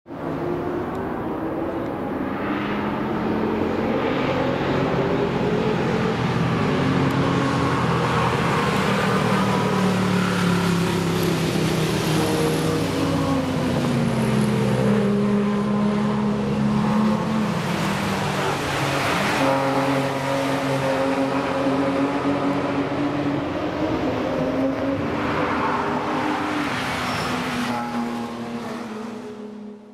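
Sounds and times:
racing cars passing: 0.1 - 29.9.

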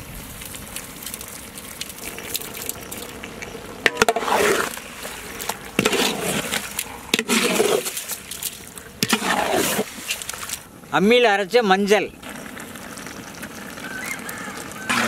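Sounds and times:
wet squelching stirring: 0.7 - 10.7
low sizzle in a pot: 12.2 - 15.0.

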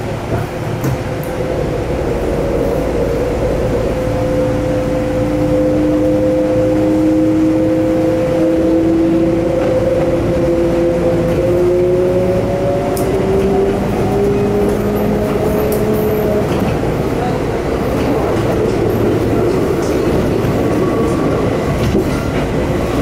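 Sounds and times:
train running rumble: 0.0 - 23.0
electric train motors whining: 1.2 - 17.2.

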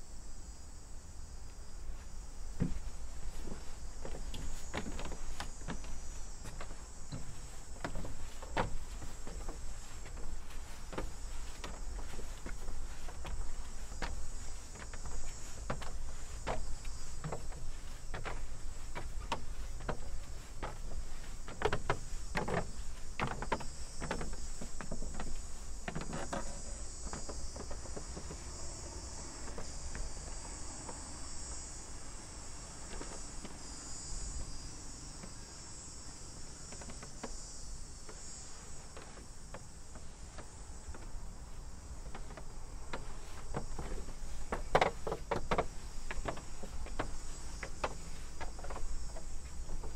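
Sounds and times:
insects chorus: 0.0 - 49.9
footsteps knocking: 2.6 - 28.4, 42.0 - 49.9.

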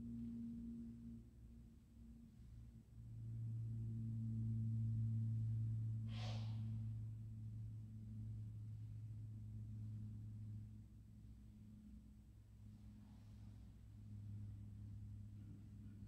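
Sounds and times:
low steady hum: 0.0 - 16.0
short breathy hiss: 6.1 - 6.6.

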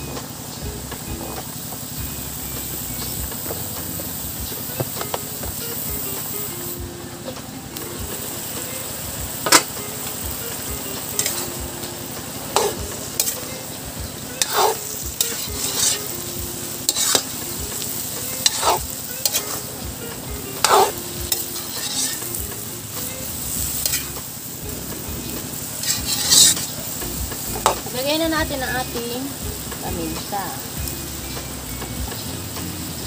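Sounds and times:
pan sizzling: 0.0 - 33.0
metal ladle scraping wok: 8.2 - 19.8, 20.6 - 22.4, 23.0 - 24.4, 25.3 - 27.0.

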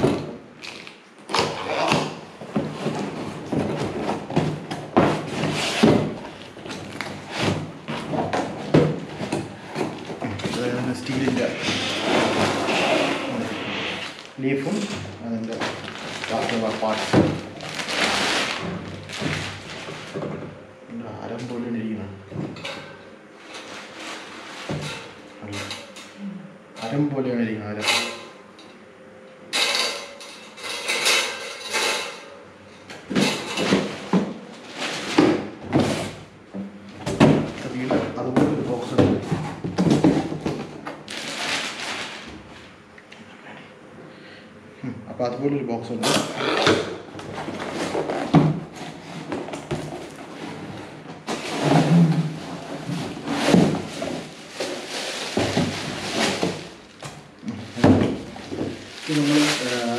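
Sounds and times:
fan parts clunking: 0.0 - 13.2, 14.4 - 28.9, 29.5 - 41.6
packaging rustling: 14.1 - 20.2, 41.0 - 42.3, 51.3 - 57.0, 57.6 - 59.9.

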